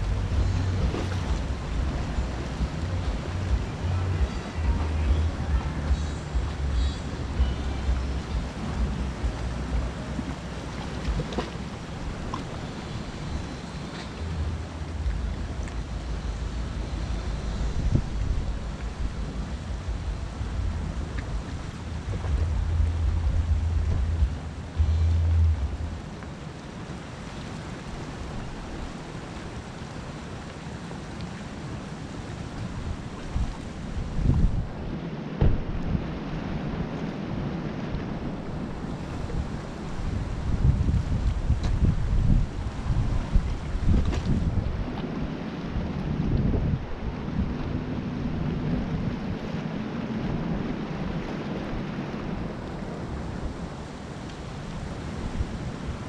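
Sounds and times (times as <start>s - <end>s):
sea washing on rocky shore: 0.0s - 56.0s
wind rumble on microphone: 0.0s - 56.0s
faint low hum: 12.3s - 26.7s.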